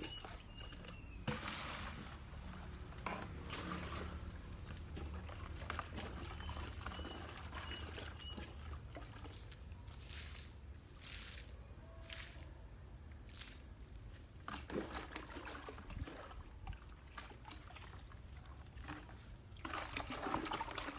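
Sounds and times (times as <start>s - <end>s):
water pouring and splashing: 0.0s - 12.5s, 13.2s - 20.9s.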